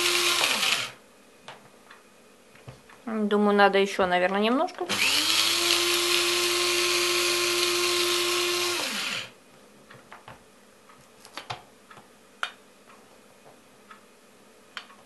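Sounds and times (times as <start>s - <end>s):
coffee grinder whirring: 0.0s - 1.0s, 4.9s - 9.4s.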